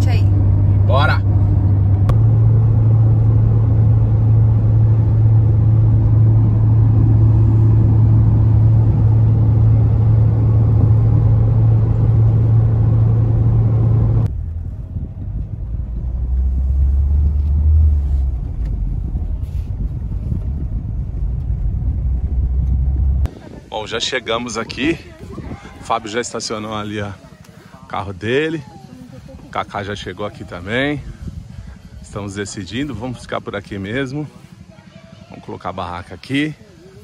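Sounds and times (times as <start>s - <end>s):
car engine and tyre drone: 0.0s - 23.4s.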